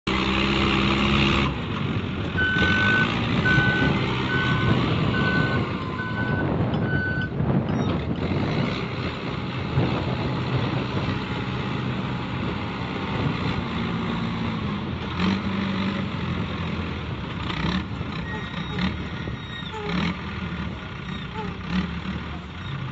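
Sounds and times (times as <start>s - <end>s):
diesel engine running: 0.1s - 22.9s
reversing alarm beeping: 2.4s - 7.3s.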